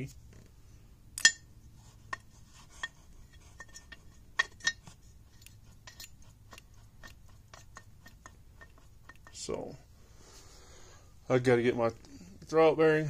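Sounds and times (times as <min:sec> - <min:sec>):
metallic clicks and clinks: 0:02.1 - 0:09.5.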